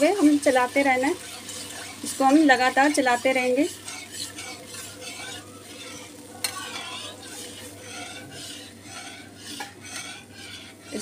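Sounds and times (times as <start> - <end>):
faint sizzle: 0.0 - 11.0
spoon scraping metal pan: 0.0 - 11.0
spoon tapping pan: 1.2 - 8.6.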